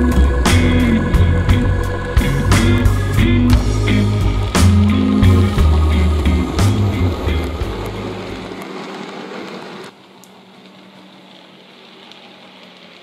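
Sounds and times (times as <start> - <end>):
faint steady hum: 0.0 - 13.0
model train running on track: 0.0 - 13.0.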